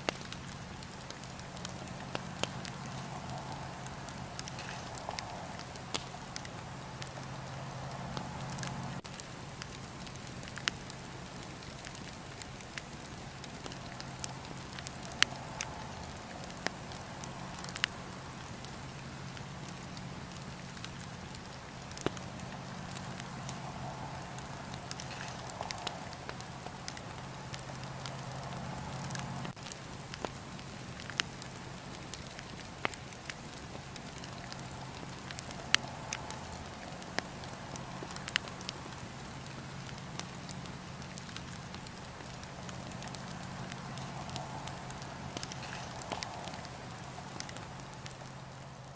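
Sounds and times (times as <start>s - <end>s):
steady low hum: 0.0s - 29.8s
campfire crackling and popping: 0.0s - 48.9s.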